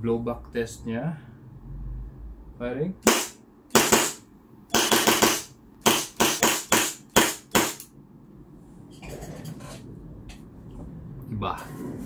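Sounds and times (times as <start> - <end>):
airsoft pistol shots: 3.0 - 7.9.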